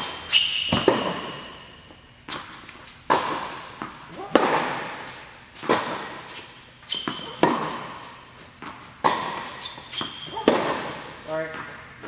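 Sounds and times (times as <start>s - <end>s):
racquets hitting tennis ball: 0.0s - 1.6s, 2.3s - 11.8s
shoes squeaking on court: 0.0s - 4.1s, 5.1s - 11.8s
ball bouncing: 0.6s - 1.4s, 7.0s - 8.0s, 8.6s - 11.7s.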